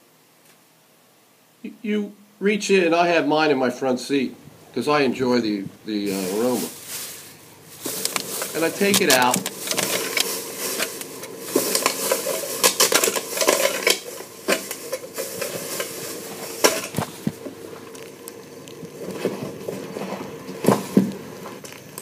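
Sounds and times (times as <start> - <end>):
plastic bag crinkling: 6.0 - 22.0.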